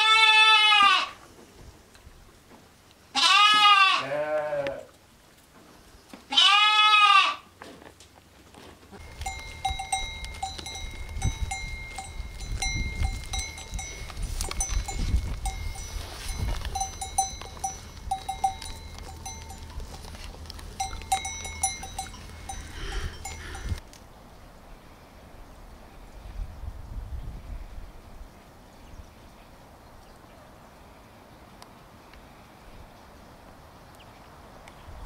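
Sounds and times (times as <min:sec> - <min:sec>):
lamb bleating: 0:00.0 - 0:01.2, 0:03.1 - 0:04.9, 0:06.3 - 0:07.4
sheep bells clinking: 0:09.0 - 0:23.8.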